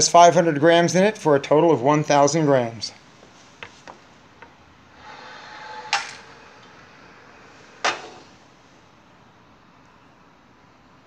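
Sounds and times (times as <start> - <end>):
carts rolling on track: 5.0 - 8.4.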